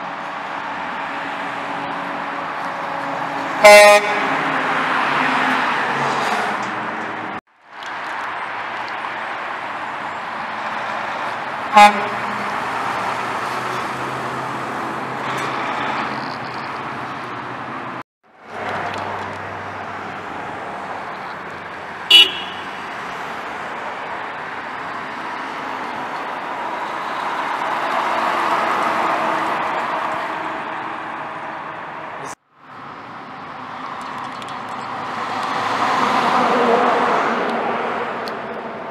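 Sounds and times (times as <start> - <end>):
heavy trucks driving past: 0.0 - 38.9
truck horn toots: 3.6 - 4.4, 11.7 - 12.7, 22.1 - 22.8.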